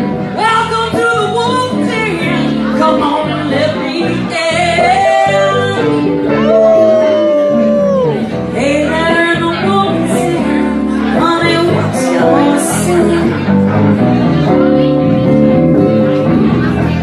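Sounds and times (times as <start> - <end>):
electric guitar: 0.0 - 17.0
woman singing into a microphone: 0.4 - 7.6, 8.5 - 13.5.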